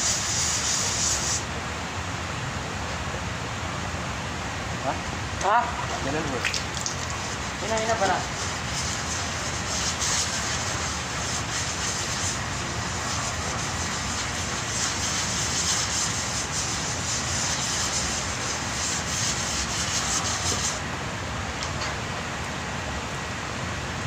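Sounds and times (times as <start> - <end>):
hand sanding with sanding block: 0.0 - 1.5, 7.2 - 20.8.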